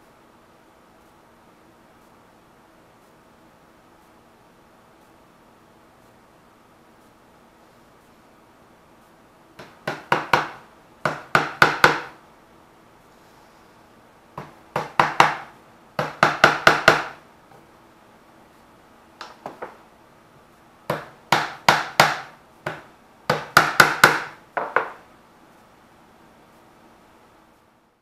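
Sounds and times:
hammer tapping on wood: 0:09.6 - 0:12.2, 0:14.4 - 0:17.2, 0:20.9 - 0:25.0.

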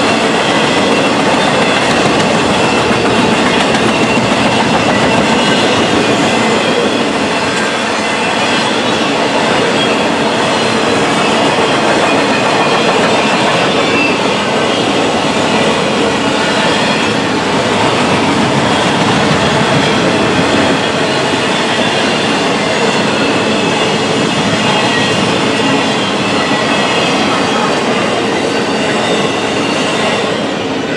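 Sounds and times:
train wheels rumbling on rail: 0:00.0 - 0:30.9.

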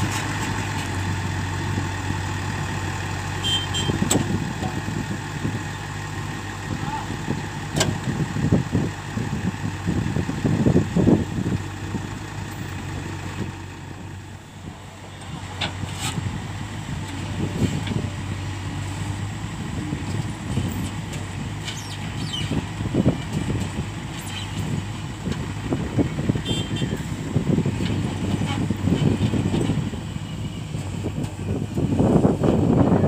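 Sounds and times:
diesel engine running: 0:00.0 - 0:33.0.

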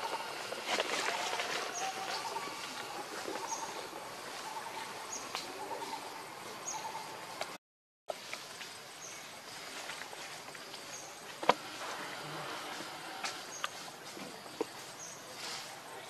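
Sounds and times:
bird calls: 0:00.0 - 0:07.4
insect hiss: 0:00.0 - 0:07.5, 0:08.1 - 0:16.0.

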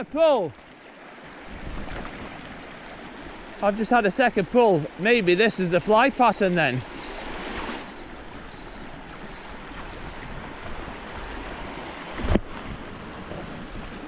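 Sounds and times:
river water rushing: 0:00.0 - 0:14.0
wind buffeting microphone: 0:06.8 - 0:14.0.

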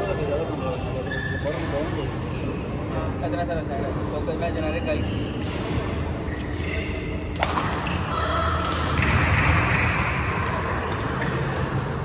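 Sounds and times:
echoing hall noise: 0:07.1 - 0:12.0
racket striking shuttlecock: 0:07.3 - 0:11.8.

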